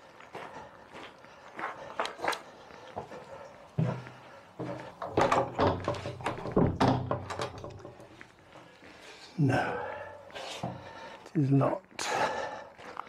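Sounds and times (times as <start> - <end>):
light footsteps: 0.0 - 13.0
locked door clunking and rattling: 5.0 - 8.1.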